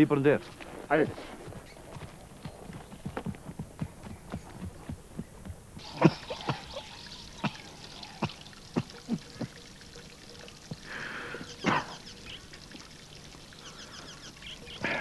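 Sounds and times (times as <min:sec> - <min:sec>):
horse hooves knocking: 0:00.5 - 0:05.9.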